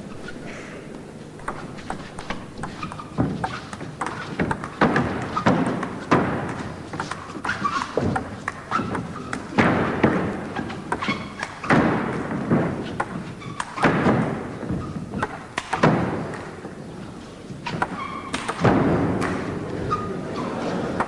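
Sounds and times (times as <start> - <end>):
table tennis ball clicks: 1.4 - 7.2
loud hard ball hit echoing: 9.3 - 10.5, 11.6 - 14.5, 18.3 - 19.7.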